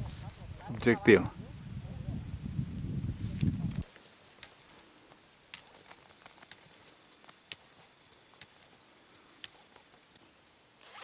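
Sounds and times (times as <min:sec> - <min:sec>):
ski poles tapping in snow: 0:03.2 - 0:10.3.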